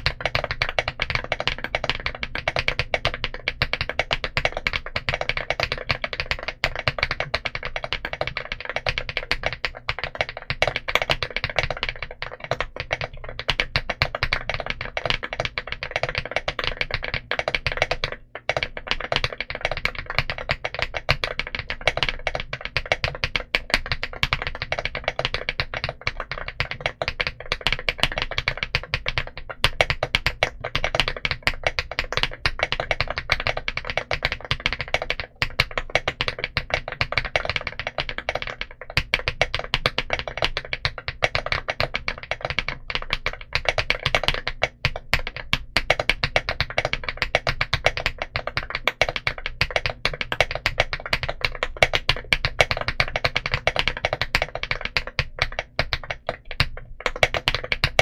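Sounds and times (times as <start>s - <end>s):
fast mechanical keyboard typing: 0.0s - 58.0s.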